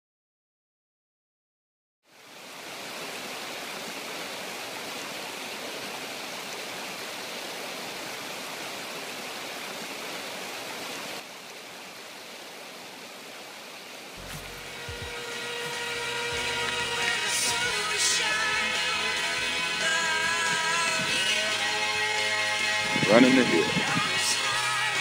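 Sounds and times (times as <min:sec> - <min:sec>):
water rushing over rocks: 0:02.2 - 0:25.0
music: 0:14.2 - 0:25.0.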